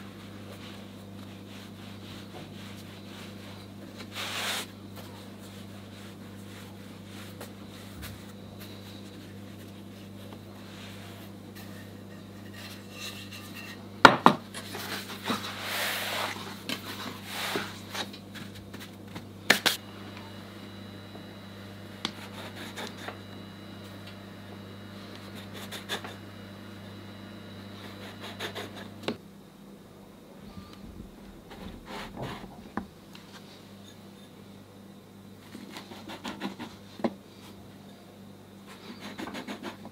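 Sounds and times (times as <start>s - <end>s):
steady low hum: 0.0s - 36.2s
dough rubbing on wooden board: 27.8s - 29.0s.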